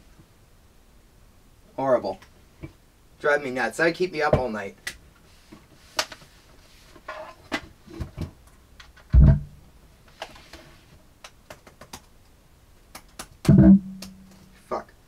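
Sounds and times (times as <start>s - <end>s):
deep thump: 9.1s - 9.6s, 13.5s - 14.3s.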